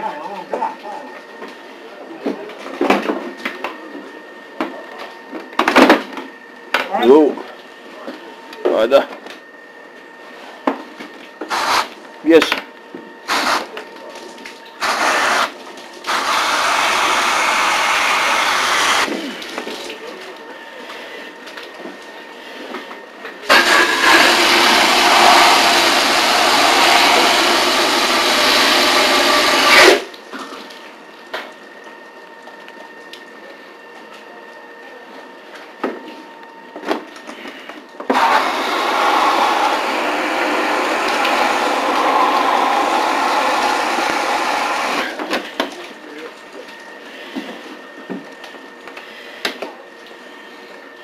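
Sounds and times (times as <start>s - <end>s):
hose nozzle spraying water: 11.5s - 11.9s, 14.8s - 15.5s.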